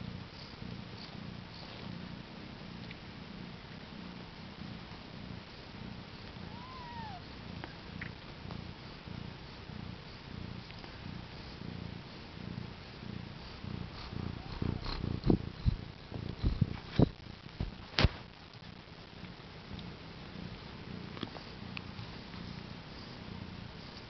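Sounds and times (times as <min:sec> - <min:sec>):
cat purring: 0:00.0 - 0:24.0.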